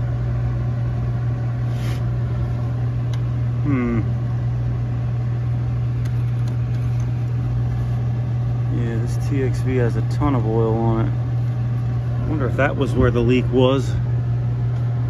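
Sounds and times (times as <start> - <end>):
low motor hum: 0.0 - 15.0
noisy mechanical drone: 0.0 - 15.0
short vocal sound: 3.6 - 4.2.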